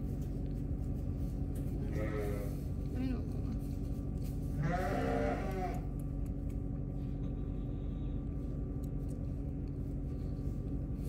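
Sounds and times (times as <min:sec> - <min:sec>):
steady low hum: 0:00.0 - 0:11.0
farm animal calling: 0:01.8 - 0:02.6, 0:04.5 - 0:06.0.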